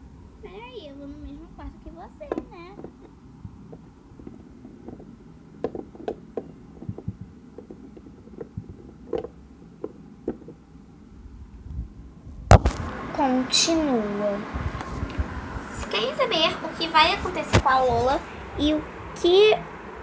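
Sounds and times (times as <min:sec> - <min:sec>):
plastic toys tapping: 0:02.3 - 0:10.6
microphone handling rumble: 0:06.7 - 0:09.0, 0:11.2 - 0:18.9.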